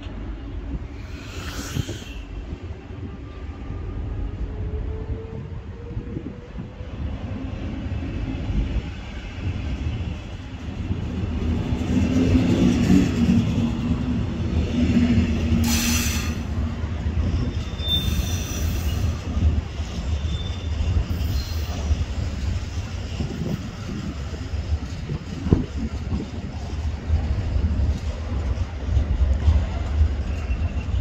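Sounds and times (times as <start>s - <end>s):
train rumbling past: 0.0s - 31.0s
brief hiss: 1.0s - 2.3s
high wheel squeals: 1.0s - 2.4s, 17.3s - 19.3s, 20.0s - 21.9s.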